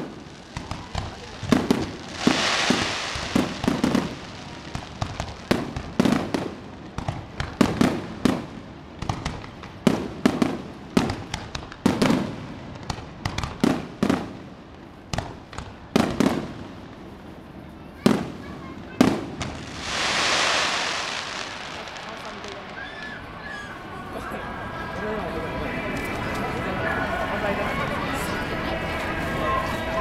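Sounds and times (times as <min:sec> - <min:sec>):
firework shells bursting: 0:19.4 - 0:23.0.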